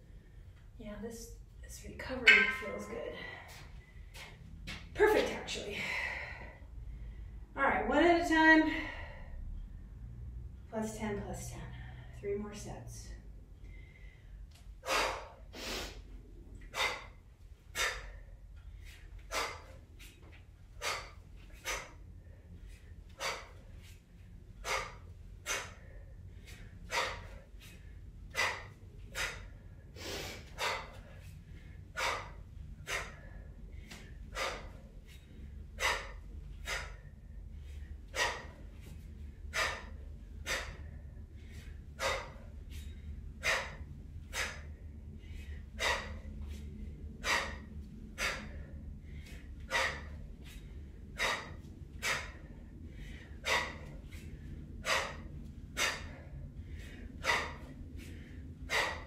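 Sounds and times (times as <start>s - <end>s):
woman's sharp hissing breaths: 13.7s - 20.2s, 20.8s - 24.0s, 24.6s - 59.0s.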